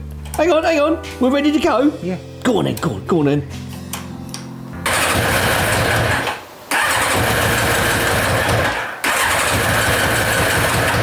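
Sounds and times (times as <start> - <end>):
motorcycle starter cranking: 4.9 - 11.0.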